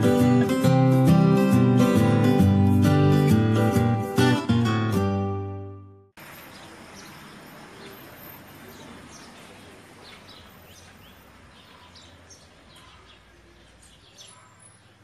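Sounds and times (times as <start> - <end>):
small birds chirping: 6.2 - 15.0.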